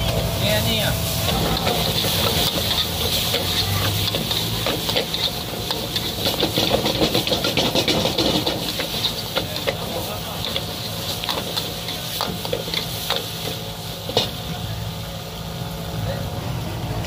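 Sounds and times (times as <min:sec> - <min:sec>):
food sizzling: 0:00.0 - 0:17.0
stirring clicks and clatter: 0:01.3 - 0:14.3.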